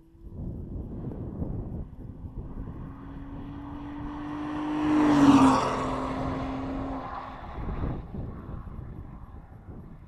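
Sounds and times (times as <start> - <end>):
car driving past at speed: 0.4 - 9.9.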